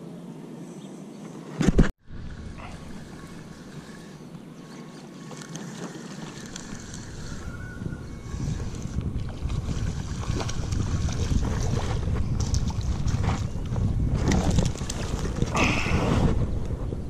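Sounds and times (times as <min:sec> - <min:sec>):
wind buffeting microphone: 0:06.2 - 0:17.0.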